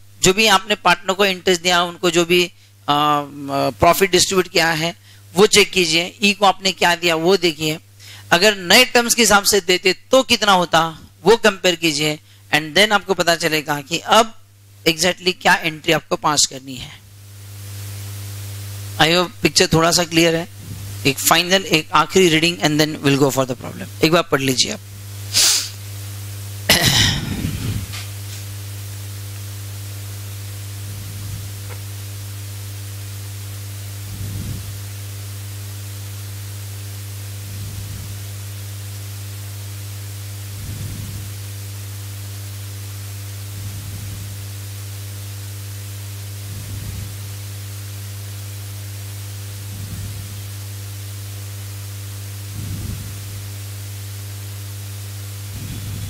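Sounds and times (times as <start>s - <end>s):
electrical hum and hiss: 0.0s - 56.0s
breathing puffs on microphone: 8.0s - 8.3s, 20.5s - 21.0s, 25.3s - 25.8s, 27.1s - 28.4s, 34.0s - 34.8s, 40.5s - 41.3s, 46.5s - 47.2s, 52.5s - 53.2s, 55.4s - 56.0s.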